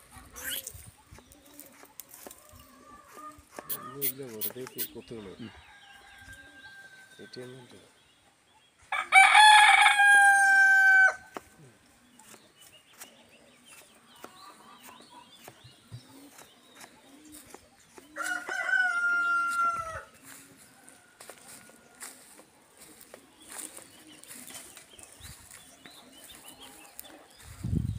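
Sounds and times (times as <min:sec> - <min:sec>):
rooster crowing: 0:08.9 - 0:11.2, 0:18.2 - 0:20.1.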